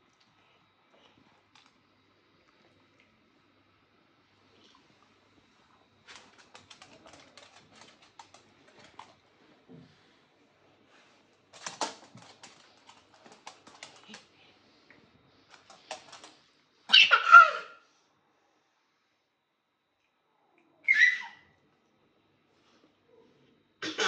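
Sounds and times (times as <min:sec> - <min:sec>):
dog claws clicking on floor: 0:06.1 - 0:09.2, 0:11.5 - 0:14.3, 0:15.5 - 0:16.4.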